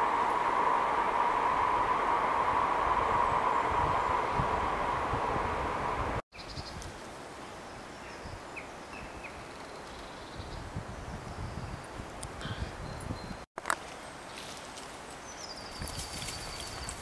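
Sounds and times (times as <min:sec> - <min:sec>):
steady rushing noise: 0:00.0 - 0:06.2.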